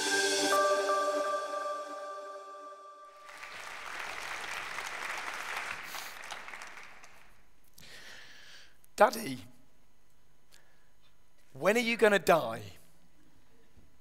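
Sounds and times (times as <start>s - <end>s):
audience applause: 3.2s - 7.4s.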